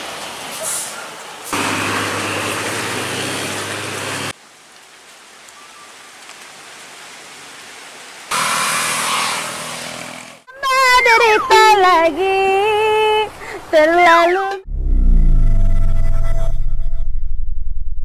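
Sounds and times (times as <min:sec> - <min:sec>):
truck engine running: 0:01.6 - 0:04.3
heavy rain on wet road: 0:01.6 - 0:08.3
rain falling on flooded road: 0:03.5 - 0:08.3.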